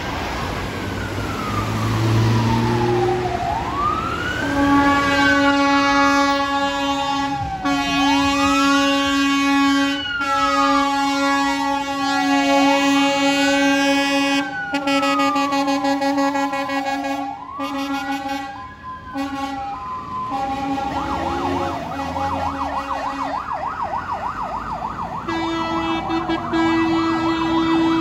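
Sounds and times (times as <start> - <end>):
fire engine siren wailing: 0.0 - 28.0
air horns blaring: 4.3 - 23.5, 25.2 - 28.0.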